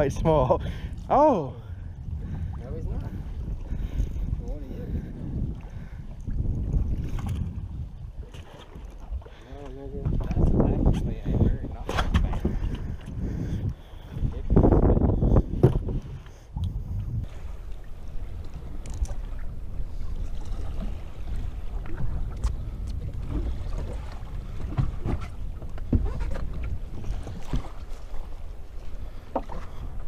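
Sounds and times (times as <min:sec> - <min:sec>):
wind rumbling on microphone: 0:00.0 - 0:30.0.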